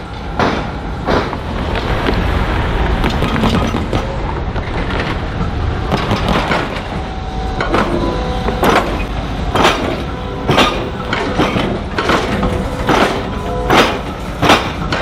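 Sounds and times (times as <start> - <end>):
tram wheels knocking over rails: 0.0 - 2.3, 2.9 - 15.0
road traffic rushing: 0.0 - 15.0
clunks: 3.0 - 15.0.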